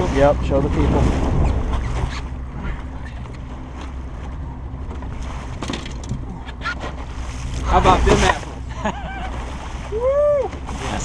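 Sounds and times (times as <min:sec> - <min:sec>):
wind on microphone: 0:00.0 - 0:02.6
boat motor humming: 0:00.0 - 0:11.0
water noise: 0:00.0 - 0:11.0.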